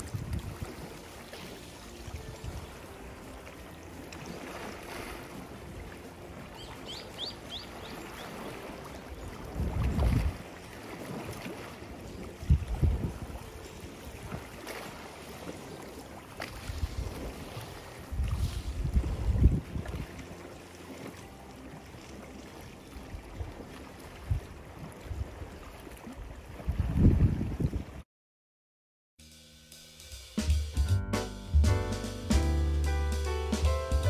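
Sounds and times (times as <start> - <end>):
wind buffeting microphone: 0.0 - 1.0, 7.8 - 10.5, 12.2 - 13.6, 16.6 - 20.2, 24.2 - 28.0
small waves lapping on gravel: 0.0 - 26.7.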